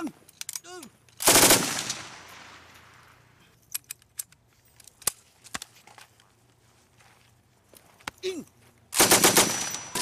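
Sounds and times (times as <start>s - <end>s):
machine gun burst: 1.2s - 2.0s, 9.0s - 10.0s.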